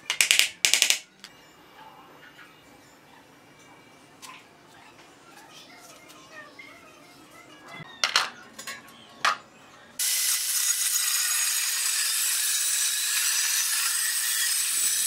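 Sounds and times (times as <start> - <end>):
angle grinder cutting steel: 10.0 - 15.0.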